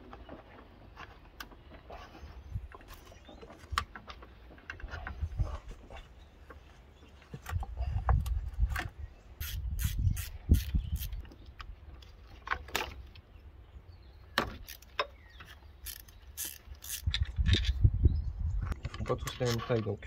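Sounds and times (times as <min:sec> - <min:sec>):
hand tools clicking on metal: 0:14.6 - 0:17.7.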